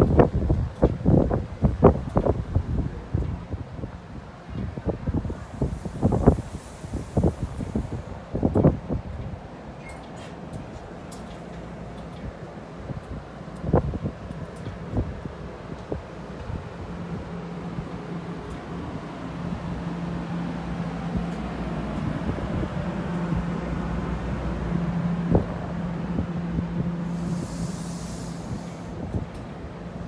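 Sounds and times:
train coaches rumbling past: 0:00.0 - 0:30.0
air hiss: 0:05.2 - 0:08.4, 0:26.9 - 0:29.4.

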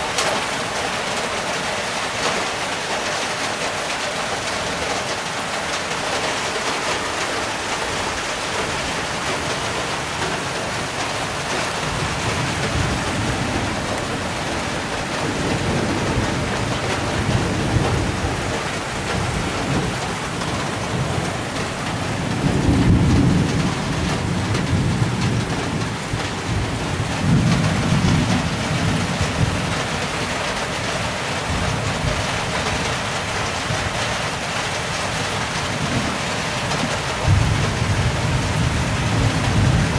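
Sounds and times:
heavy rain falling: 0:00.0 - 0:39.9
low thunder rolling: 0:10.1 - 0:29.8, 0:37.2 - 0:39.9.

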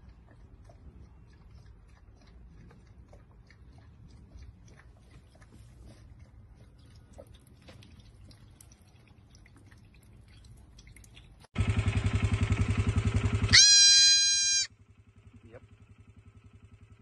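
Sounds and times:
baby goat bleating: 0:13.5 - 0:14.7.

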